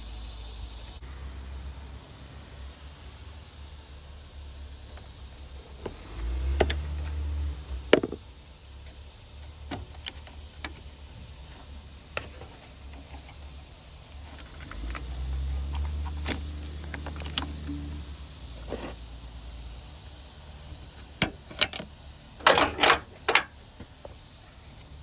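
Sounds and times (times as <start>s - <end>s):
plastic connector clicks and scrapes: 14.2s - 17.9s.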